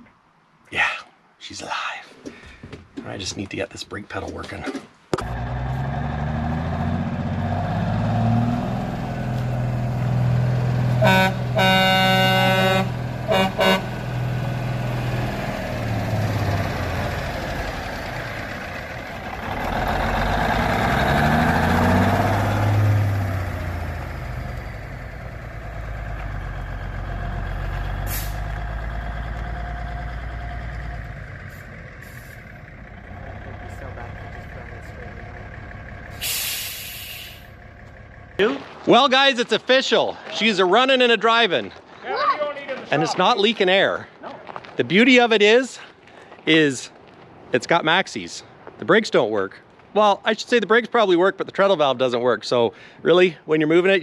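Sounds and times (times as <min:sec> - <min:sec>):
diesel truck engine revving: 0:05.2 - 0:38.7
truck horn blasts: 0:11.0 - 0:14.1.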